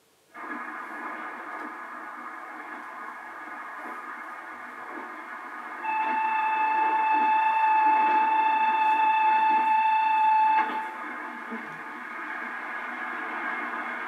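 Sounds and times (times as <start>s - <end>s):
train rumble and clatter: 0.4s - 14.0s
steady high tone: 5.8s - 11.7s.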